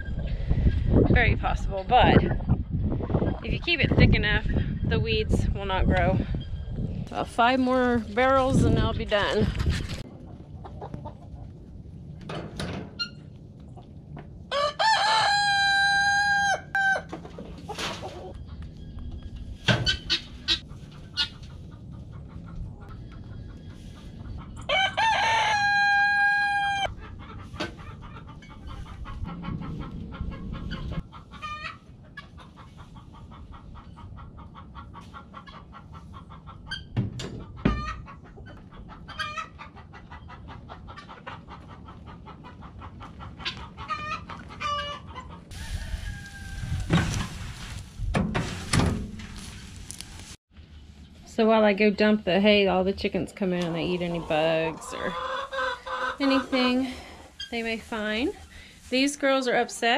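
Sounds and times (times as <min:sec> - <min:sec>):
hens clucking: 0:10.0 - 0:12.0, 0:16.0 - 0:47.3, 0:53.3 - 0:59.9
rooster crowing: 0:14.5 - 0:17.1, 0:24.7 - 0:26.9, 0:45.5 - 0:46.8.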